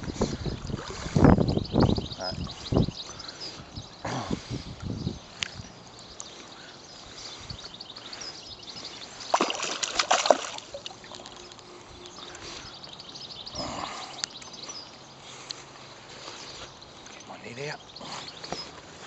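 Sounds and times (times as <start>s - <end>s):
fish splashing in water: 9.2s - 11.7s.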